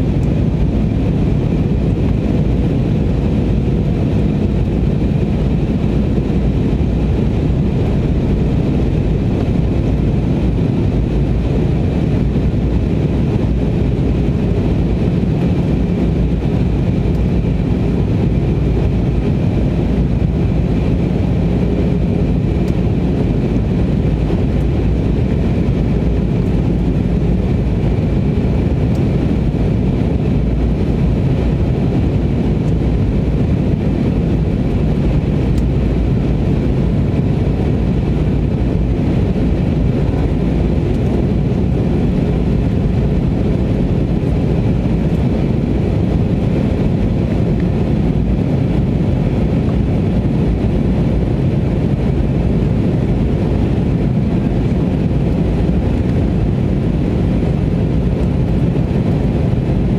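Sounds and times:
jet engine noise: 0:00.0 - 0:59.9
rushing airflow: 0:00.0 - 0:59.9.

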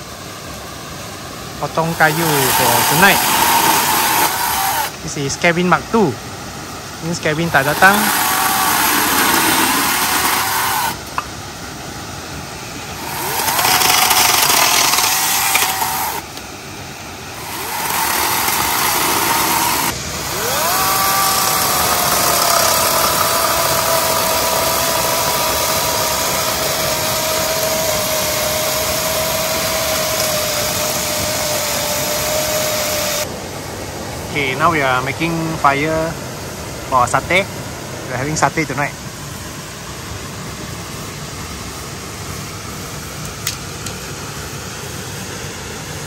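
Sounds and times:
chainsaw cutting wood: 0:01.8 - 0:05.0, 0:07.4 - 0:11.3, 0:12.9 - 0:16.4, 0:17.3 - 0:33.3.

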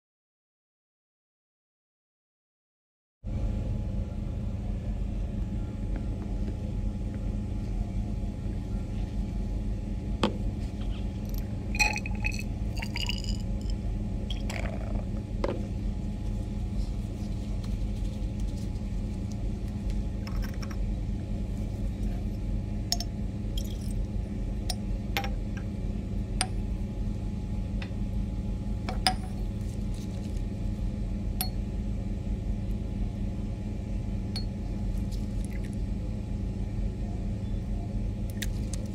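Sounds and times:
ventilation hum: 0:03.2 - 0:38.9
glassware clinking: 0:11.8 - 0:13.4.

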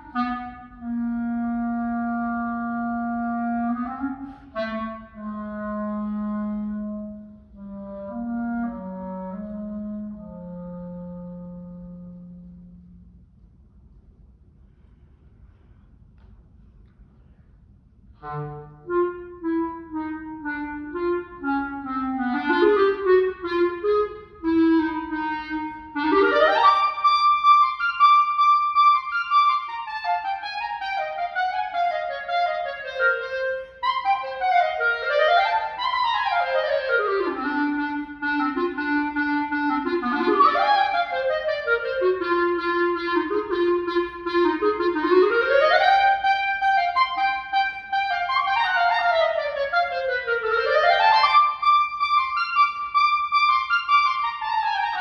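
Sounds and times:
solo clarinet classical piece: 0:00.0 - 0:13.2, 0:18.1 - 0:55.0.

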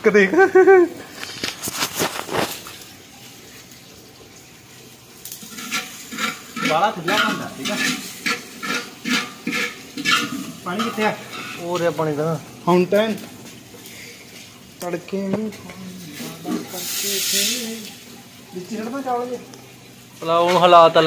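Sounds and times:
metal ladle scraping cooking pot: 0:05.4 - 0:12.0.

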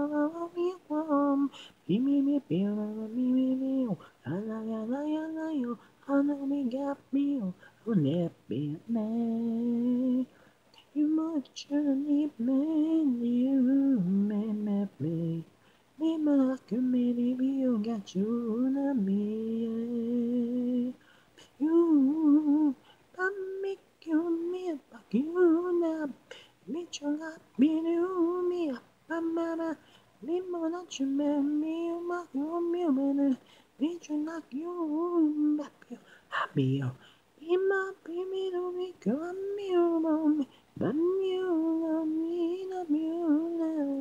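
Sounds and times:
person singing a cappella: 0:00.0 - 0:44.0.

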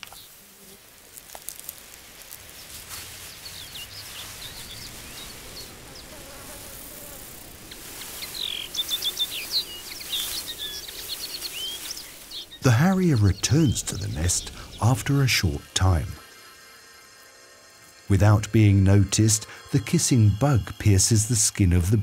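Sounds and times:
faint steady hiss: 0:00.0 - 0:22.0
small birds chirping and trilling: 0:00.0 - 0:22.0
soft rustles: 0:00.1 - 0:04.6, 0:07.6 - 0:12.5.

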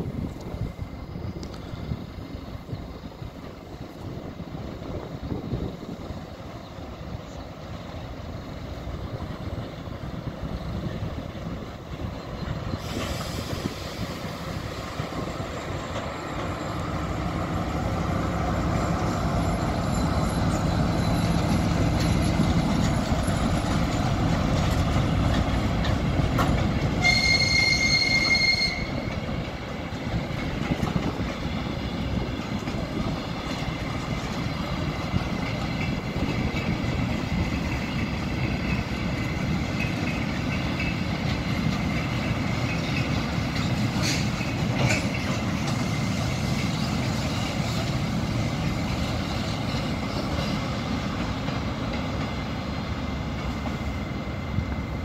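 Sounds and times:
diesel locomotive engine running: 0:00.0 - 0:55.0
train wheels rumbling on rails: 0:00.0 - 0:55.0
high wheel squeal: 0:12.0 - 0:24.0, 0:26.9 - 0:29.4.

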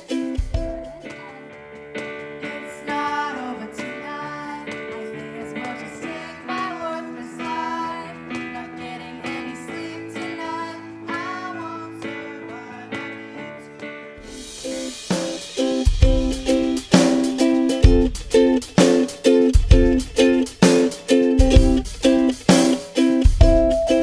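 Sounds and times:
girl singing: 0:00.0 - 0:01.8, 0:02.4 - 0:14.0
keyboard chords: 0:00.0 - 0:24.0
strummed acoustic guitar: 0:00.0 - 0:24.0.

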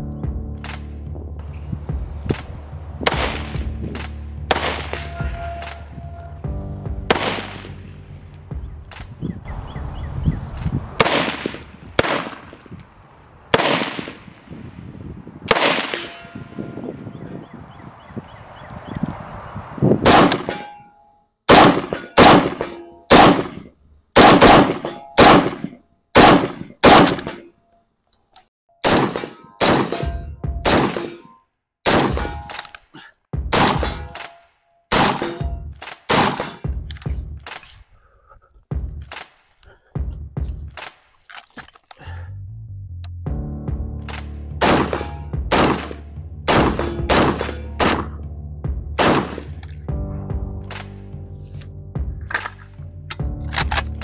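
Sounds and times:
rifle shots: 0:02.3 - 0:05.2, 0:07.1 - 0:07.8, 0:11.0 - 0:12.7, 0:13.5 - 0:14.4, 0:15.5 - 0:16.1, 0:20.0 - 0:20.6, 0:21.5 - 0:23.6, 0:24.2 - 0:27.4, 0:28.8 - 0:31.3, 0:31.9 - 0:32.7, 0:33.5 - 0:34.3, 0:34.9 - 0:36.8, 0:44.6 - 0:48.2, 0:49.0 - 0:49.6
bullet clanging on steel target: 0:03.9 - 0:06.3, 0:15.9 - 0:16.6, 0:20.3 - 0:21.1, 0:29.1 - 0:31.4, 0:32.1 - 0:32.9, 0:33.7 - 0:37.8, 0:52.3 - 0:54.0.

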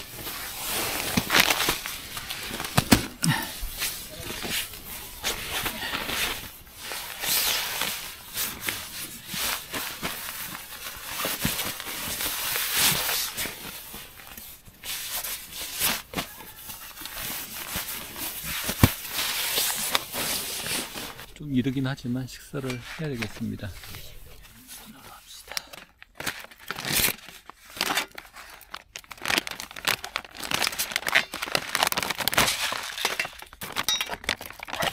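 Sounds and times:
rustling of nylon fabric: 0:00.0 - 0:21.3.

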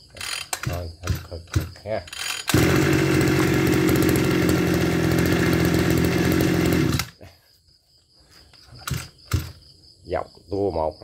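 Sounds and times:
brush cutter engine running: 0:00.2 - 0:07.2.

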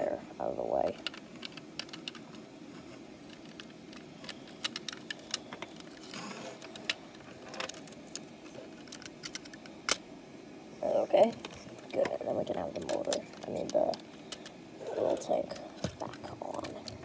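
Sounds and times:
plastic toy parts clicking: 0:00.9 - 0:02.3, 0:03.3 - 0:10.0, 0:12.8 - 0:14.5
scraping rustle: 0:05.8 - 0:09.0.

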